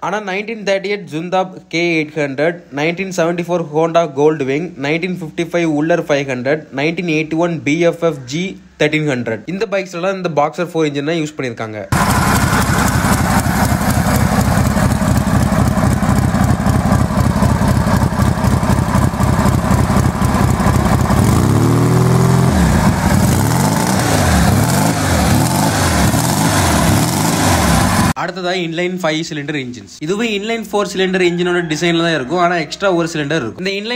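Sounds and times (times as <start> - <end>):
motorcycle engine idling: 12.0 - 25.7
motorcycle engine revving: 12.0 - 28.2.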